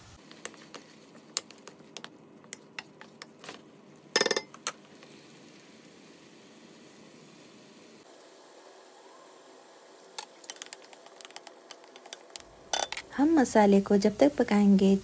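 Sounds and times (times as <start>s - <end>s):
clatter of stirring: 0.2s - 3.6s, 10.2s - 13.0s
utensils tapping on frying pan: 0.2s - 3.6s, 4.2s - 4.7s, 10.2s - 13.0s.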